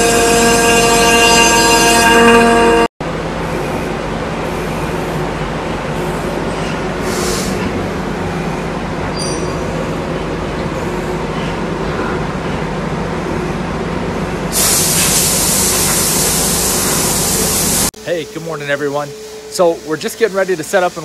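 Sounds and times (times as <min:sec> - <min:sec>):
high whining milling cut: 0:00.0 - 0:02.9.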